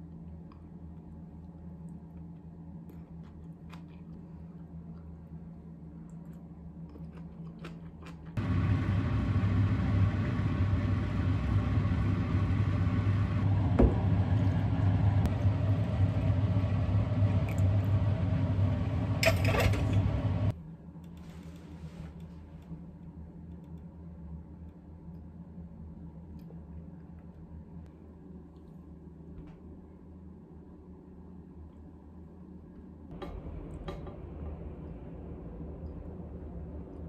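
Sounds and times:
loud steady rumbling: 8.4s - 20.5s, 33.1s - 37.0s.

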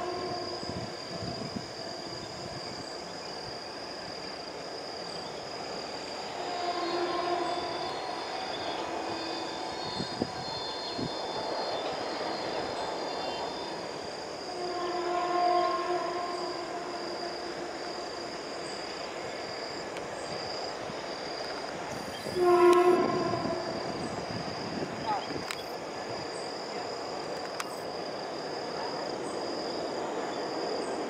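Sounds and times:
locomotive horn: 0.0s - 0.7s, 6.5s - 7.9s, 14.5s - 17.8s, 22.2s - 24.0s
insect drone: 0.0s - 31.0s
train rolling rumble: 0.0s - 31.0s.

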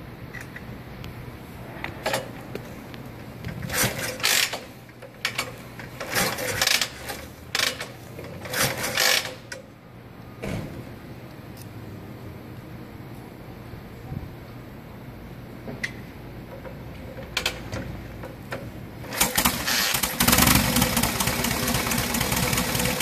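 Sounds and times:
kick starter clunking and ratcheting: 3.5s - 9.6s, 16.6s - 23.0s.

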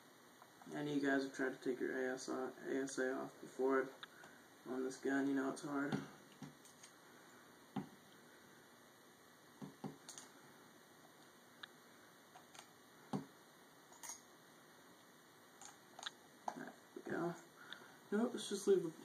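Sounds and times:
small metal parts clicking: 13.9s - 14.2s.

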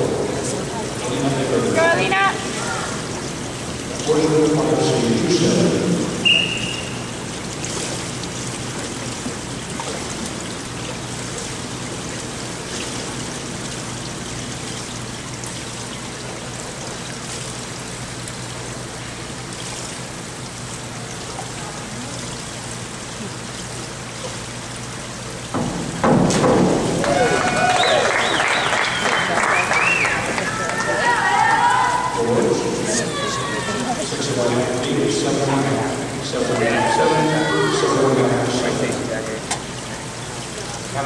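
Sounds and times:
high whistle: 6.2s - 7.1s.

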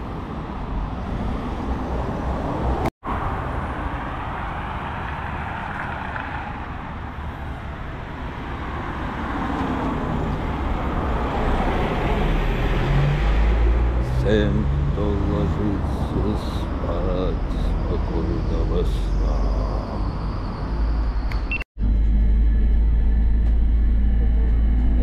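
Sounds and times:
low engine rumble: 9.8s - 25.0s.

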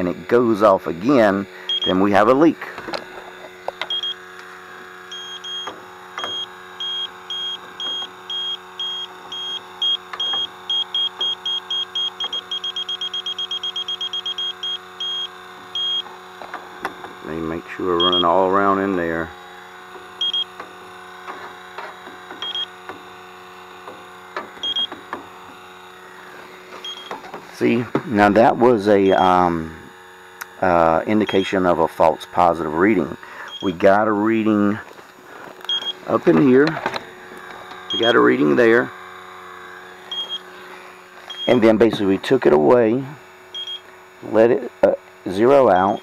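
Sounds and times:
steady hum: 0.0s - 46.0s
leak detector beeping: 1.6s - 2.5s, 3.6s - 27.3s, 29.0s - 29.5s, 31.2s - 31.7s, 33.4s - 33.9s, 35.6s - 36.2s, 37.4s - 41.9s, 43.5s - 43.9s, 45.6s - 46.0s.

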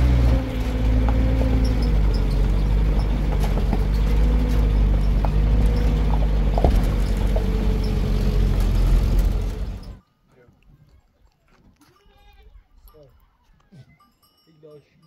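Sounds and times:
vehicle engine running: 0.0s - 10.0s.

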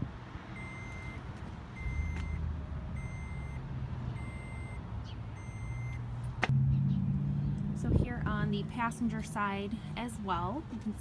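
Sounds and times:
electronic warning beeps: 0.6s - 1.2s, 1.8s - 2.4s, 3.0s - 3.6s, 4.2s - 4.8s, 5.4s - 6.0s.

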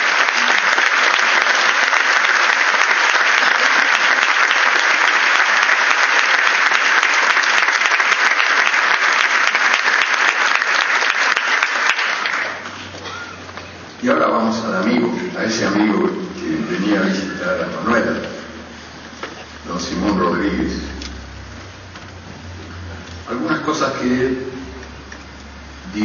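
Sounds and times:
audience applauding: 0.0s - 13.5s.

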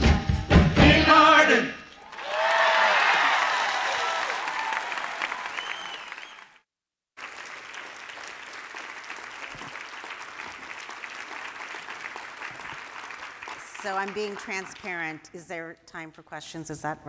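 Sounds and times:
audience applause: 2.0s - 6.6s, 7.2s - 15.0s.

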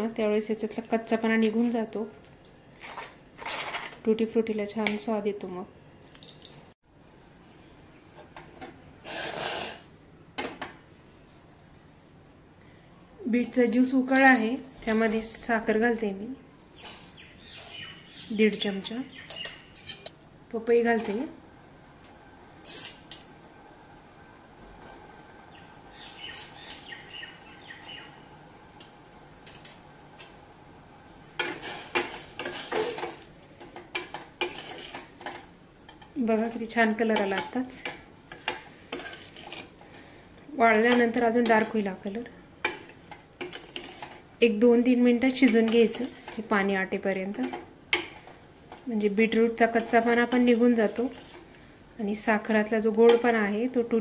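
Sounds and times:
spoon scraping a pan: 22.6s - 23.2s, 31.4s - 40.1s, 40.9s - 41.8s, 42.6s - 44.2s, 45.4s - 46.6s, 49.4s - 51.5s
faint bird chirps: 25.5s - 28.2s.

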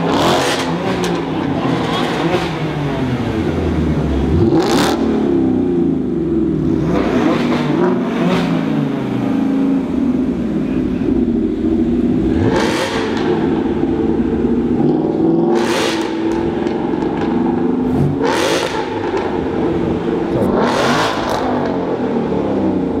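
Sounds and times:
car engine idling: 0.0s - 23.0s
engine revving exhaust surge: 6.5s - 23.0s.

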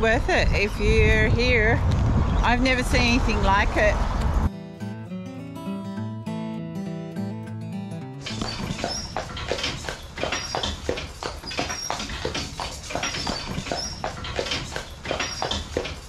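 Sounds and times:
cart wheels rumbling: 8.3s - 16.0s
horse hooves clip-clopping: 8.3s - 16.0s.

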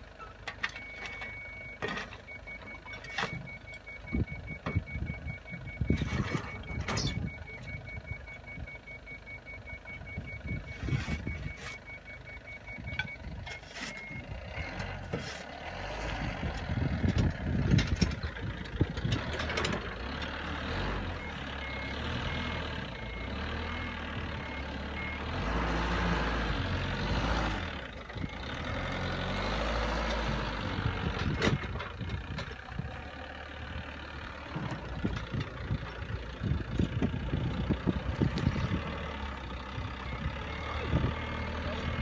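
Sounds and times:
reversing alarm beeping: 0.2s - 14.9s, 20.4s - 26.4s, 38.2s - 42.0s
forklift engine revving: 9.1s - 42.0s.

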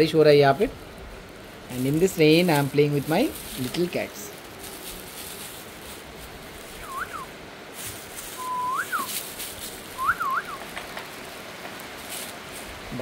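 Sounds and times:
heavy rain hiss: 0.0s - 13.0s
whistled calls: 6.8s - 7.4s, 8.4s - 9.2s, 9.9s - 10.7s.

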